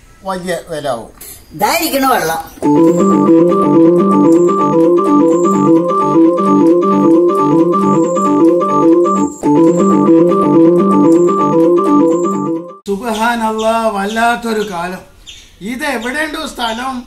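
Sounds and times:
electronic organ keyboard music: 2.6 - 12.9.

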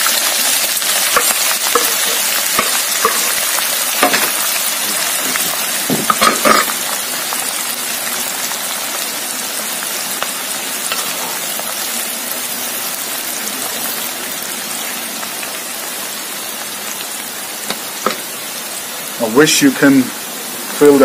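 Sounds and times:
spices sizzling in oil: 0.0 - 21.0
spatula stirring: 0.9 - 4.4.

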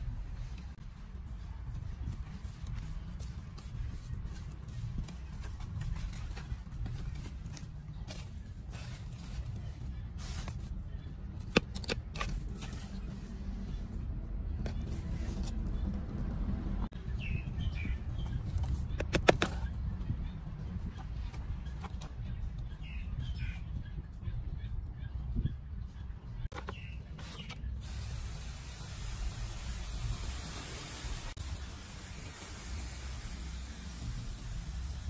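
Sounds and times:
hands rustling dry soil: 0.3 - 13.4
bird chirping: 17.0 - 20.4, 21.6 - 27.8.

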